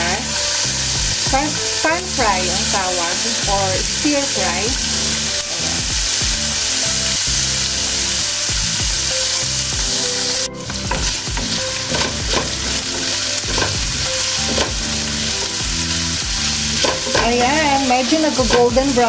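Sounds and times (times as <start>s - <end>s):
meat sizzling in a pan: 0.0s - 19.0s
spatula scraping a pan: 10.6s - 18.9s.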